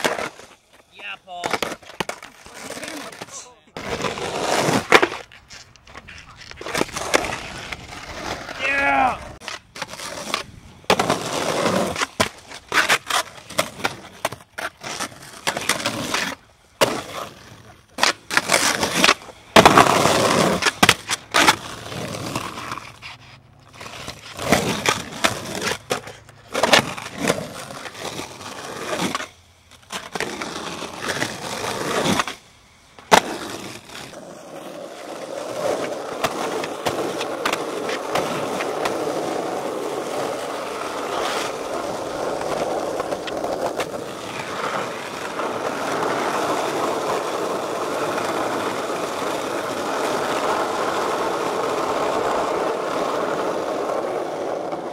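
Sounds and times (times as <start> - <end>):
skateboard clacking and landing: 0.0 - 8.3, 17.9 - 22.9, 33.0 - 54.9
skateboard wheels rolling on concrete: 0.0 - 54.9.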